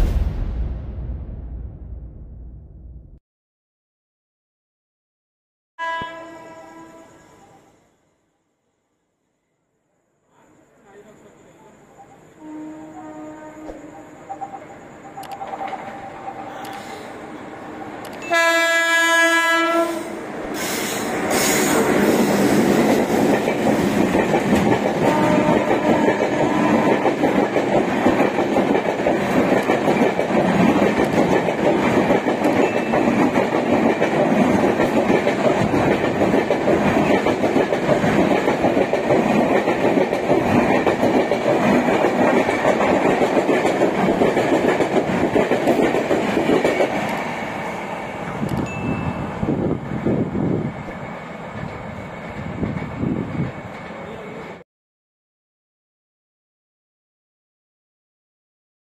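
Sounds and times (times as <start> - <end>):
locomotive horn blast: 5.8 - 7.2, 12.4 - 14.0, 18.2 - 20.2, 25.0 - 27.0
train passing at speed: 10.4 - 54.6.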